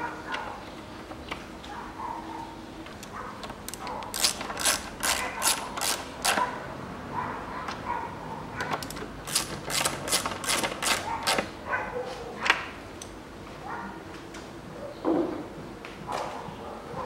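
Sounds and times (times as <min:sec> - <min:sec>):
ratchet wrench clicking: 0:03.7 - 0:06.4.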